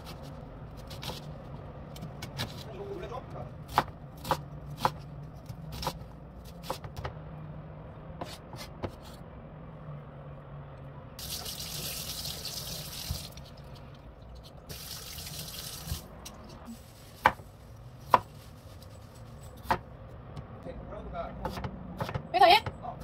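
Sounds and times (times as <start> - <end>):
tap water running into sink: 11.2 - 13.4, 14.7 - 16.0.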